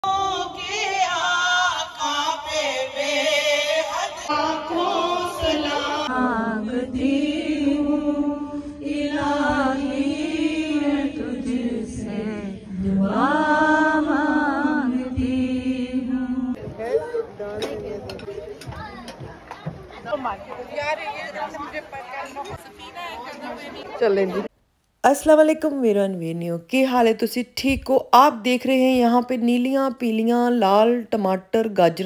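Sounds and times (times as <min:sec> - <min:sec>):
women singing into microphones: 0:00.0 - 0:16.6.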